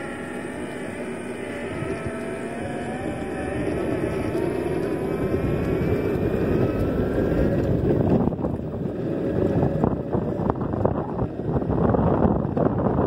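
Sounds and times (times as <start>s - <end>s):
electric motor whine: 0.0s - 13.0s
wheels rolling on asphalt: 0.0s - 13.0s
wind buffeting microphone: 0.0s - 13.0s.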